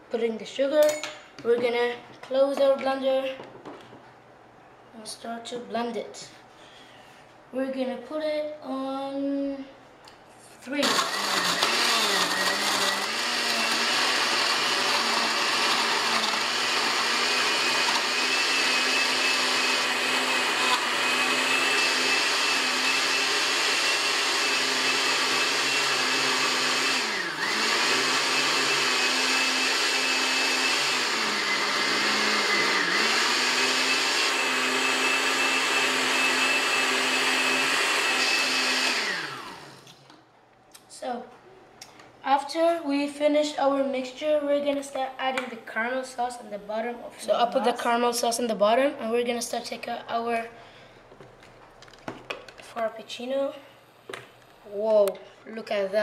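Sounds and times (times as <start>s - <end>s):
blender crushing ice: 10.8s - 40.0s.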